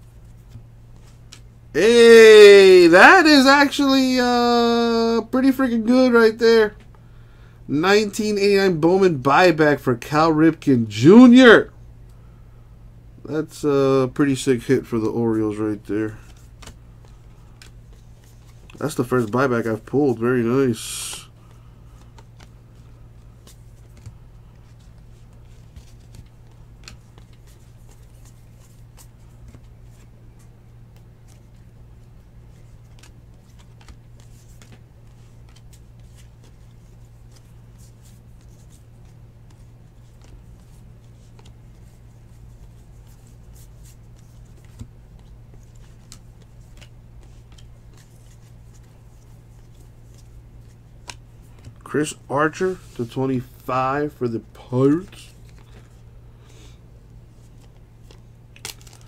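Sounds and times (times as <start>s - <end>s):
steady low hum: 0.0s - 2.0s, 2.6s - 59.0s
trading cards flipped by hand: 0.1s - 1.6s, 16.1s - 20.2s, 21.0s - 59.0s
card clicks and slides: 0.2s - 1.5s, 21.0s - 31.7s, 32.5s - 53.5s.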